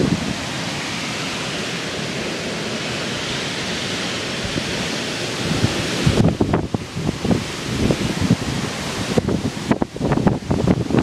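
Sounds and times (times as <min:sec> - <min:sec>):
wind rumble on microphone: 0:00.0 - 0:00.5, 0:04.4 - 0:11.0
hurricane wind rushing: 0:00.0 - 0:11.0.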